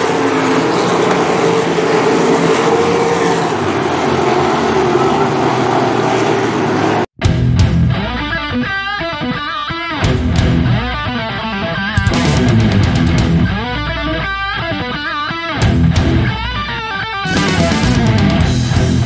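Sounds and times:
rock music with electric guitar: 7.2s - 19.0s.

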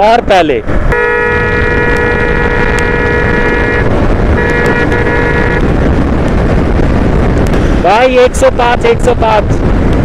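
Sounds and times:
motorcycle wind and engine rush: 0.0s - 10.0s
vehicle horn: 0.9s - 5.7s.

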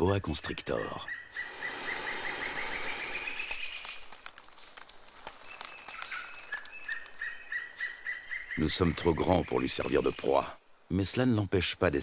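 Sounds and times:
faint clicks and rustles: 3.2s - 7.5s.

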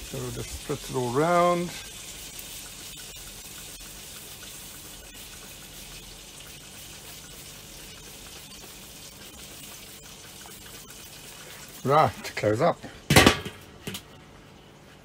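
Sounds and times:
grill hissing and sizzling: 0.0s - 14.2s
spray bottle spritzing: 1.6s - 11.9s.

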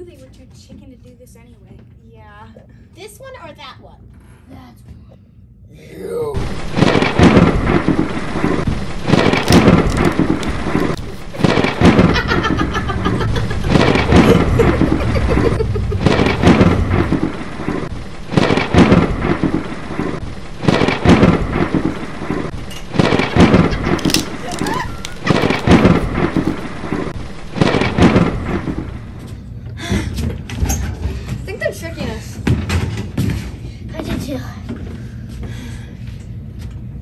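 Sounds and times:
thunder cracks and rumbles: 6.3s - 30.1s
rain hiss: 6.4s - 29.2s.

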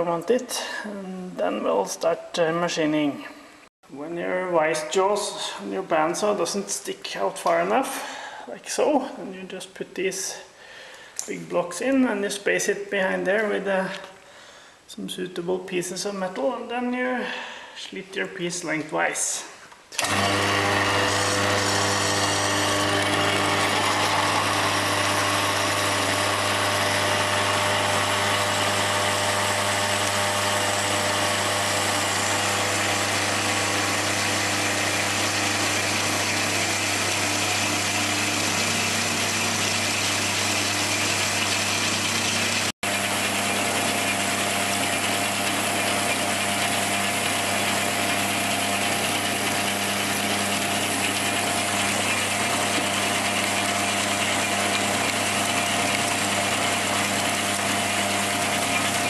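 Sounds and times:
band saw cutting metal: 20.0s - 59.0s.

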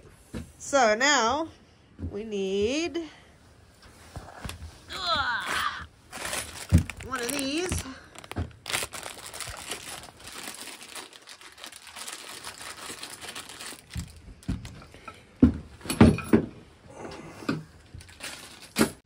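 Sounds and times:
plastic bag crinkling: 5.4s - 14.9s, 18.0s - 19.0s.

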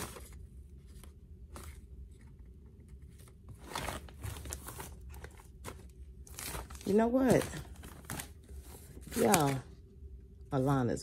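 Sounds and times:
bags rustling and crinkling: 3.5s - 9.7s.

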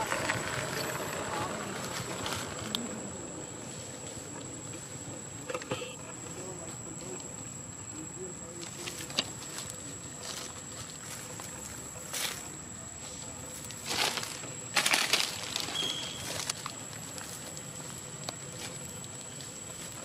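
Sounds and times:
faint high whine: 0.0s - 20.0s
rustling in grass and dry leaves: 8.6s - 20.0s
faint high chirp: 15.7s - 16.4s.

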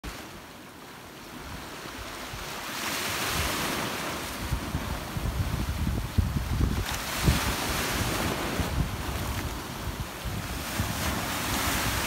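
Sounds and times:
small waves washing ashore: 0.0s - 12.0s
wind buffeting microphone: 3.2s - 12.0s.

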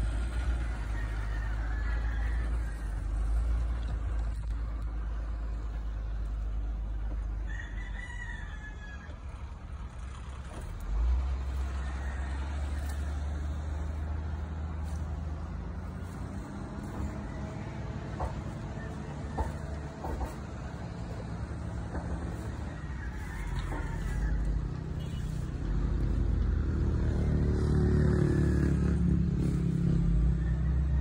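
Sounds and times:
heavy machinery engine rumble: 0.0s - 31.0s
rooster crowing: 0.2s - 3.9s, 7.1s - 9.4s, 11.4s - 31.0s.

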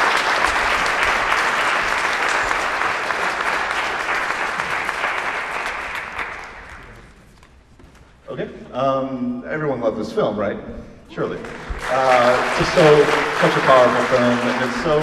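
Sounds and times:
audience applauding: 0.0s - 7.1s, 11.3s - 15.0s.

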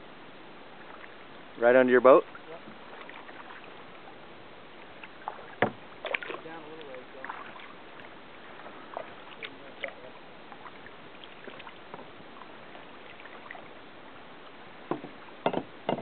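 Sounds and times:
paddle splashing water: 0.0s - 16.0s
steady low hiss: 0.0s - 16.0s
water dripping and lapping: 0.3s - 16.0s.

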